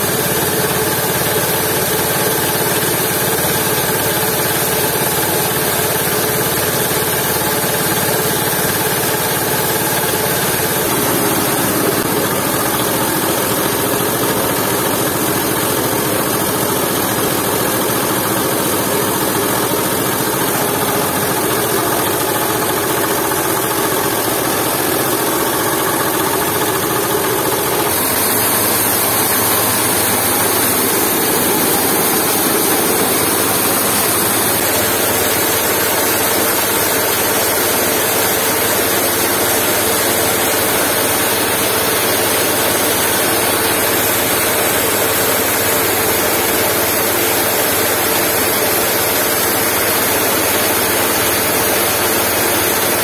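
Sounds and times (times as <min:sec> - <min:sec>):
diesel engine running: 0:08.9 - 0:36.7.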